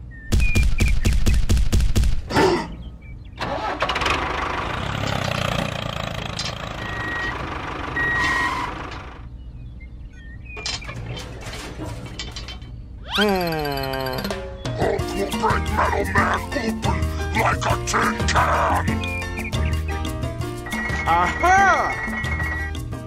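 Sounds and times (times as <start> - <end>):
tractor engine chugging: 3.4 - 9.2.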